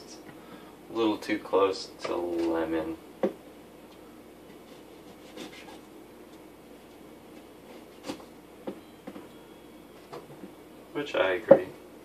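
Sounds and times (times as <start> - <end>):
knife scraping: 4.5 - 5.9.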